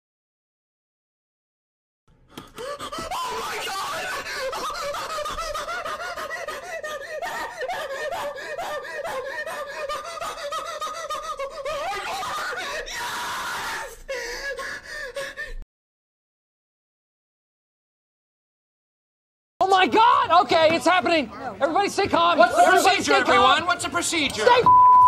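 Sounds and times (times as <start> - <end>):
person squealing and laughing: 2.6 - 15.3
person screaming: 2.9 - 14.8.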